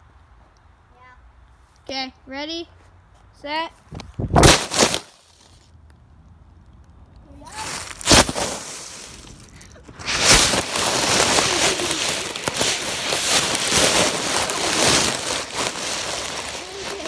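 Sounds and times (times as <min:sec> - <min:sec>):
dry leaves rustling and crunching: 0:04.4 - 0:05.7, 0:07.4 - 0:17.0.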